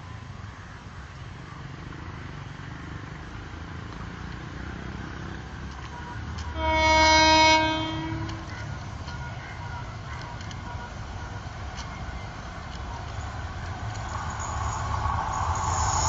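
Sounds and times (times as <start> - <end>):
train horn blast: 6.5 - 9.9.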